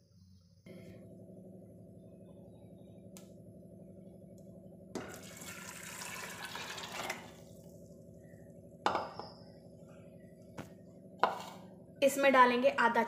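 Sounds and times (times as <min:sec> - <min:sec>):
water pouring and splashing: 0:05.1 - 0:07.3.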